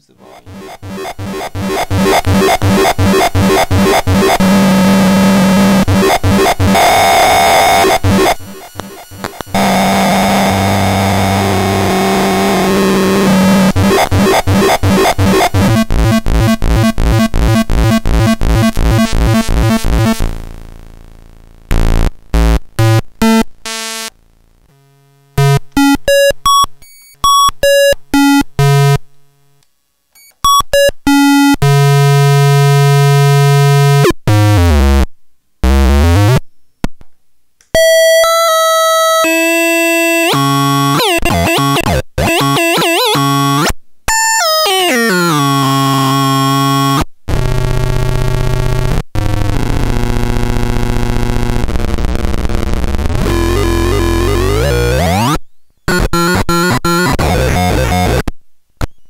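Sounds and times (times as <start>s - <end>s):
fast pulsing synthesizer buzz: 0.3s - 26.7s
chiptune-style synth bleeps: 0.4s - 10.1s, 13.3s - 20.2s, 40.9s - 43.2s.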